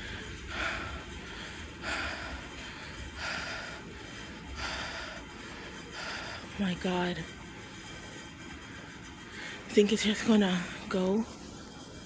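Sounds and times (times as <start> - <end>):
person breathing heavily: 0.0 - 6.6.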